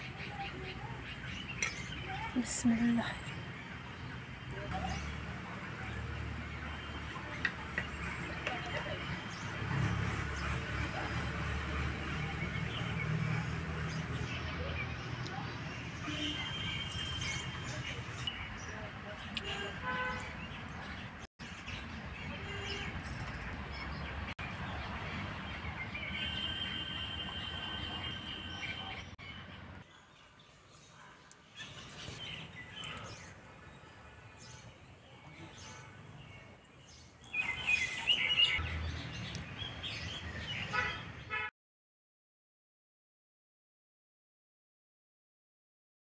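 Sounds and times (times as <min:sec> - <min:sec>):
birds chirping and calling: 0:00.0 - 0:05.3, 0:13.8 - 0:41.3.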